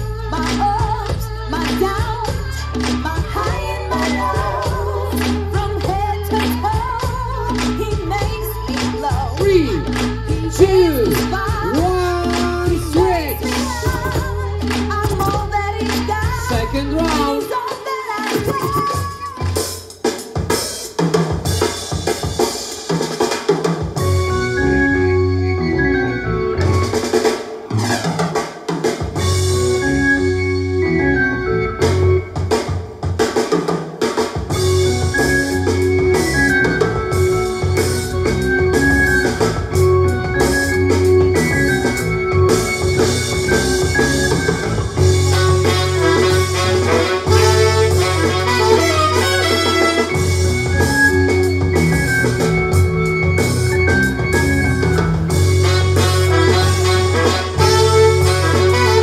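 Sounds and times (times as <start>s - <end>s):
person singing: 0.0s - 19.6s
dance music with drums and bass: 0.0s - 24.8s, 26.6s - 30.4s, 31.8s - 59.0s.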